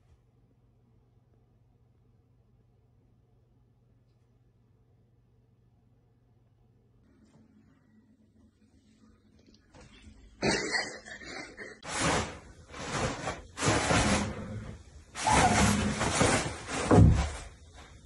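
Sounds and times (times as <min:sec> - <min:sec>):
toilet paper rustling: 0:11.8 - 0:18.0.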